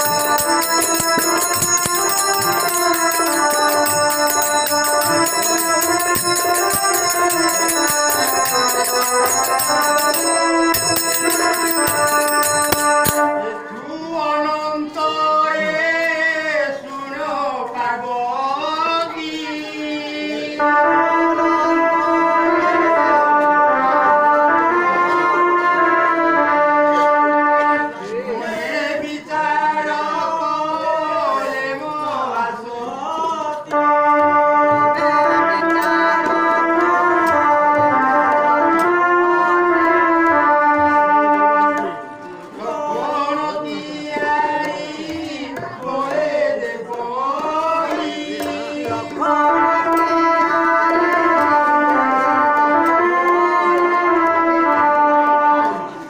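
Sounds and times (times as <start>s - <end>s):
percussion beat: 0.0s - 13.7s, 33.1s - 56.0s
melody bending in pitch: 0.0s - 13.9s
organ-like keyboard chords: 0.0s - 13.9s, 20.6s - 27.9s, 33.7s - 42.2s
person singing: 0.0s - 25.5s, 27.9s - 39.8s.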